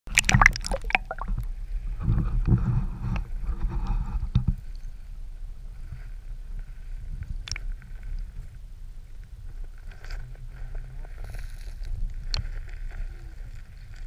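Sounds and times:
underwater clicks and knocks: 0.1 - 1.5
muffled underwater water rumble: 0.1 - 13.9.

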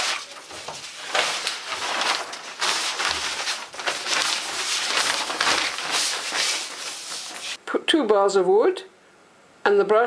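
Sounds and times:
plastic sheet rustling and crinkling: 0.0 - 7.6.

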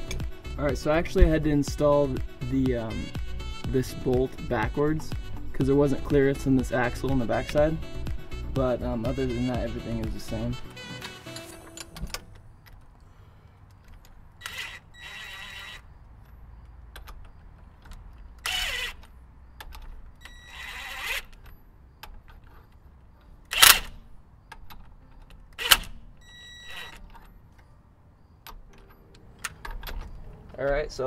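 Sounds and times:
impact wrench bursts: 14.4 - 16.0, 18.4 - 21.4, 23.5 - 24.1, 25.6 - 27.0.

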